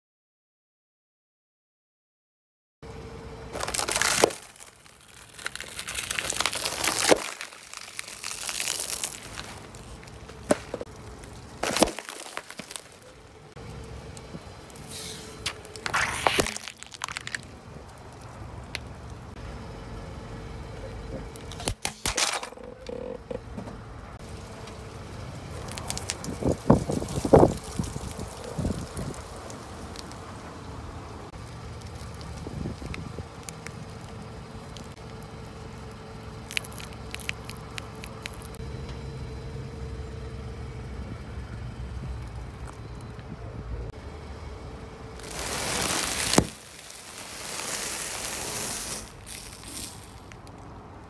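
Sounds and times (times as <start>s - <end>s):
low car rumble: 2.8s - 51.0s
plastic cracking under car tyre: 3.5s - 13.2s, 14.2s - 19.3s, 25.5s - 30.3s, 31.4s - 38.6s, 45.2s - 51.0s.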